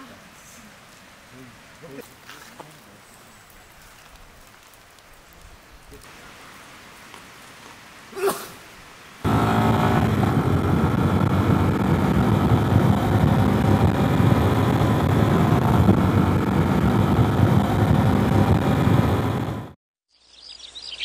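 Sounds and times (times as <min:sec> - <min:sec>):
wind noise on microphone: 0:09.3 - 0:19.7
motorcycle engine running: 0:09.3 - 0:19.8.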